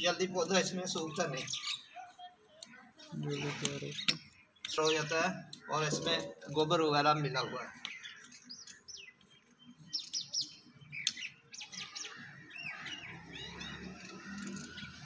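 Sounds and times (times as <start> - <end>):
small birds chirping: 0.0 - 15.0.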